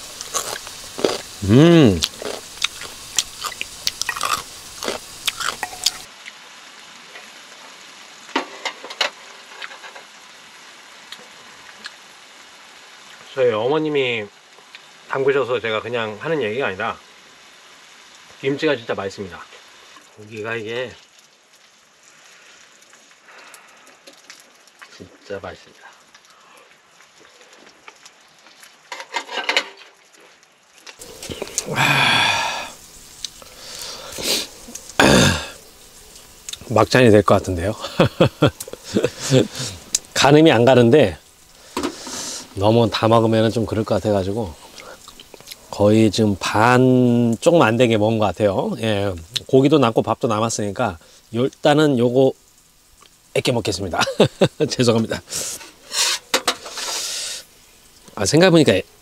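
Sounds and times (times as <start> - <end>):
meat sizzling in a pan: 0.0 - 59.0
man's drawn-out wordless vocal: 1.4 - 2.1, 31.2 - 32.8.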